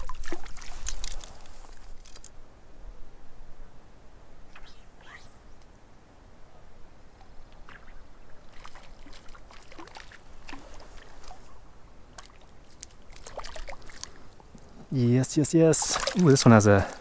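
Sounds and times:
water splashing from thrashing fish: 0.0s - 0.8s, 8.5s - 11.4s, 12.2s - 14.2s, 15.8s - 17.0s.

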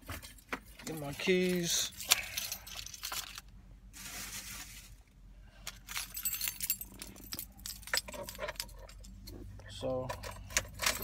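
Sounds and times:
car keys jangling: 0.2s - 3.5s, 5.7s - 9.4s, 10.0s - 11.0s
rustle: 3.9s - 5.1s.

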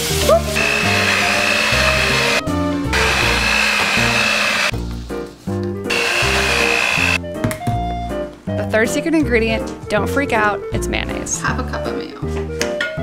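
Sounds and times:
electric hand mixer whining: 0.6s - 4.8s, 5.9s - 7.2s.

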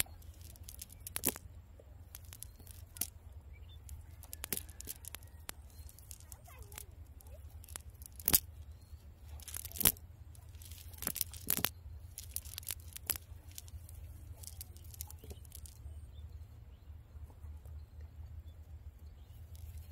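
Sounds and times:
fishing net crackling and rustling: 0.0s - 1.4s, 3.9s - 8.6s, 9.3s - 15.8s.

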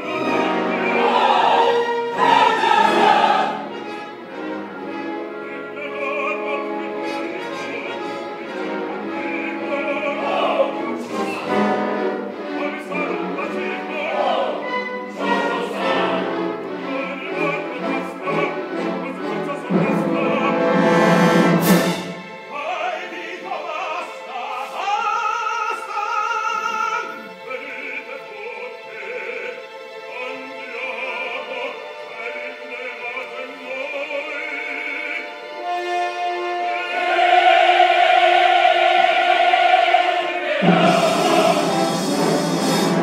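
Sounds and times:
chorus singing: 0.0s - 43.0s
orchestra playing: 0.0s - 43.0s.

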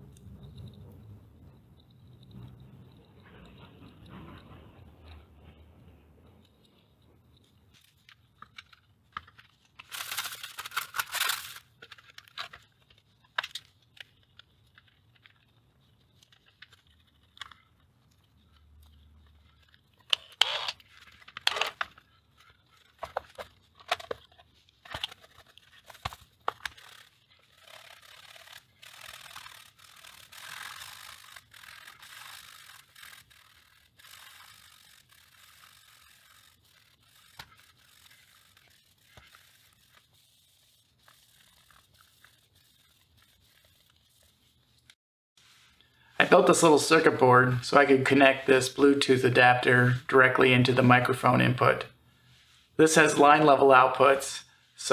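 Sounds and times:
tape recorder parts clicking: 7.3s - 40.1s.

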